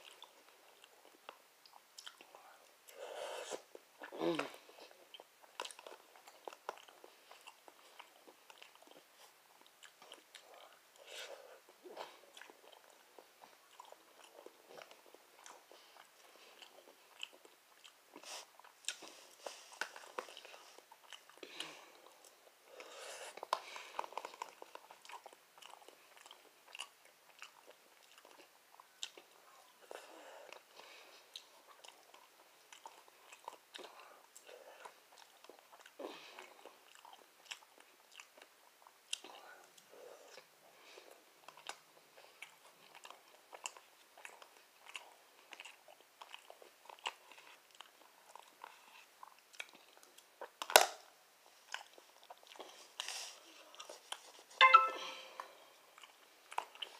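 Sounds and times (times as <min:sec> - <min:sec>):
person chewing: 0:00.0 - 0:51.0, 0:51.6 - 0:56.9.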